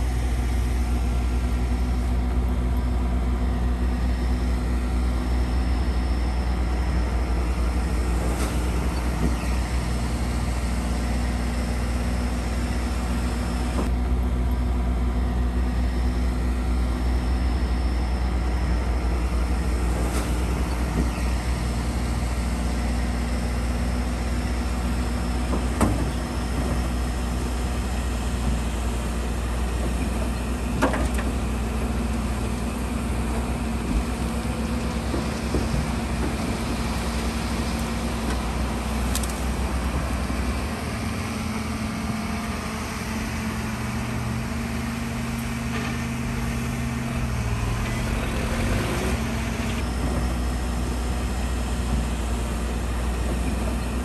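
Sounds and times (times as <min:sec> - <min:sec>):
heavy diesel engines running: 0:00.0 - 0:54.0.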